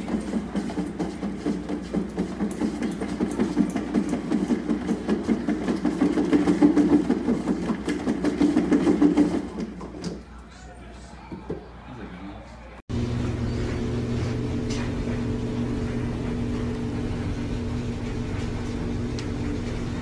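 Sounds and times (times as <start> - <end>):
exercise wheel rumbling: 0.0 - 10.0, 12.9 - 20.0
rapid clatter: 0.0 - 10.0.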